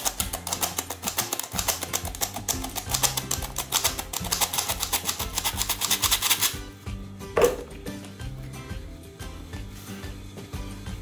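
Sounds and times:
flour sifter clicking: 0:00.0 - 0:06.6
background music: 0:00.0 - 0:11.0.

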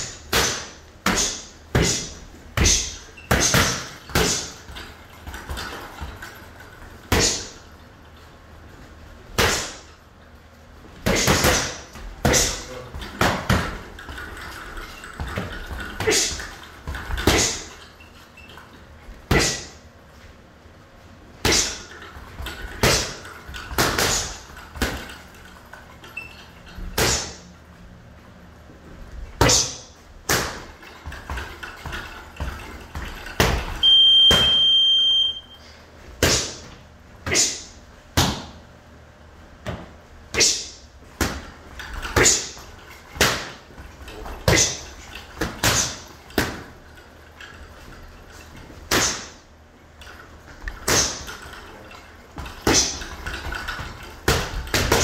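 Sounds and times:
boxing gloves hitting mitts: 0:00.0 - 0:06.3, 0:09.3 - 0:09.9, 0:11.0 - 0:17.7, 0:21.4 - 0:25.3, 0:29.4 - 0:34.5, 0:36.2 - 0:38.6, 0:39.6 - 0:46.8, 0:48.8 - 0:49.4, 0:50.5 - 0:51.5, 0:52.4 - 0:55.0
high electronic beep: 0:33.8 - 0:35.6.

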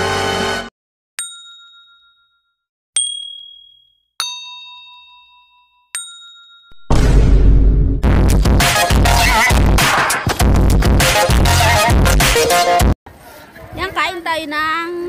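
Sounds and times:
bell-like dings: 0:01.2 - 0:06.9
intro music: 0:06.8 - 0:12.8.

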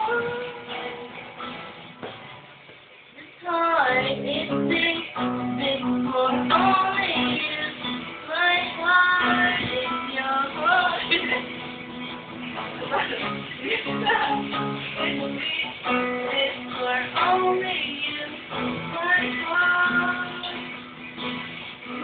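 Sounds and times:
young female voice singing: 0:00.0 - 0:01.2, 0:03.2 - 0:11.5, 0:12.8 - 0:20.8
acoustic guitar: 0:00.0 - 0:22.0.

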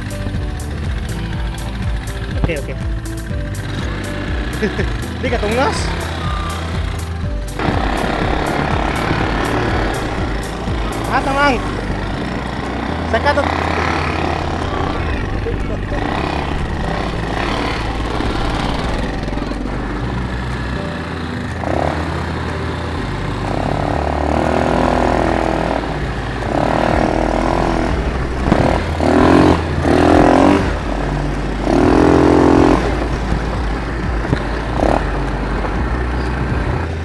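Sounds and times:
quad bike engine rumbling: 0:00.0 - 0:37.0
loud held tones: 0:03.6 - 0:20.0.

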